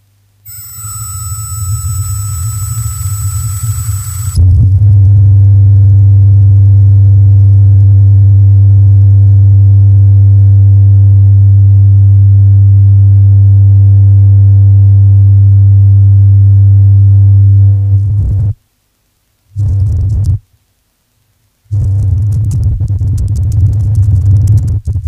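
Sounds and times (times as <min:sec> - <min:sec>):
deep drone tone: 0:00.5 - 0:08.8.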